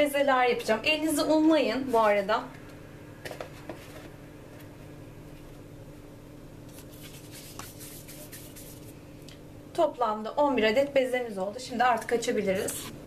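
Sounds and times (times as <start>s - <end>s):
low steady hum: 0.0s - 13.0s
hands rubbing and rustling dough: 6.6s - 9.0s.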